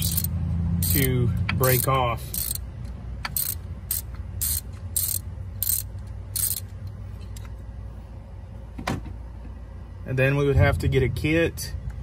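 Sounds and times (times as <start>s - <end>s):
socket ratchet clicking: 0.0s - 6.9s.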